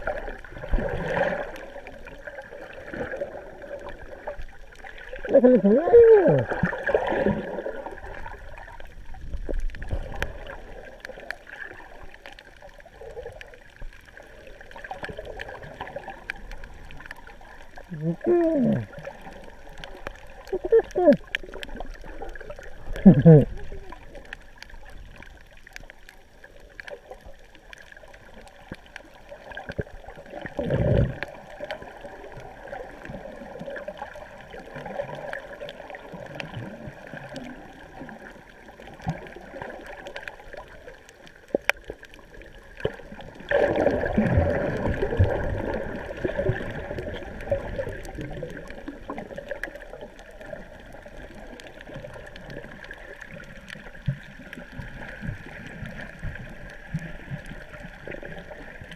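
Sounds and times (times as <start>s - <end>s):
underwater water gurgling: 0.0s - 58.9s.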